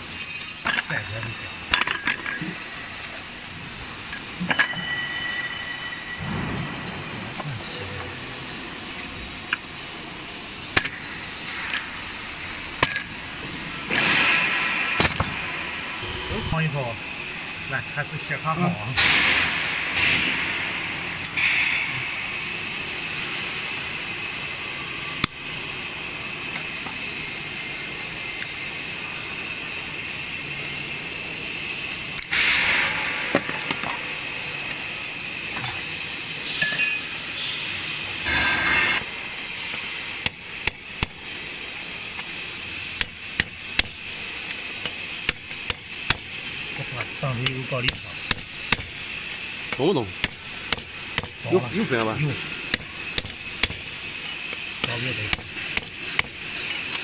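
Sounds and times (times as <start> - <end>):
hand tools clinking on metal: 0.1 - 2.5, 36.6 - 37.1.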